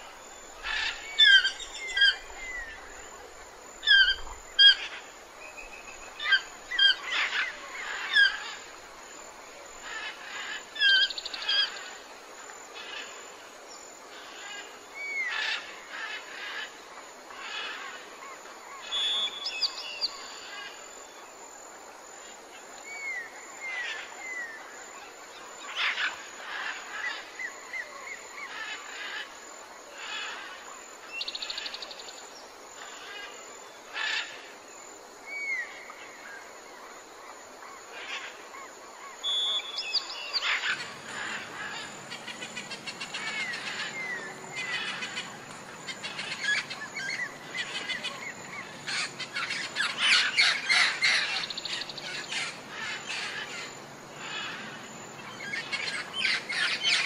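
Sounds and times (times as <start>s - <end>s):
birds chirping and whistling: 39.2s - 53.6s.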